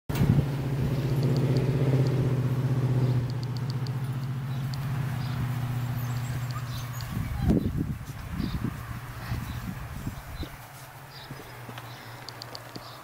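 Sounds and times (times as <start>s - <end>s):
engine humming: 0.1s - 13.0s
faint light ticks: 11.7s - 13.0s.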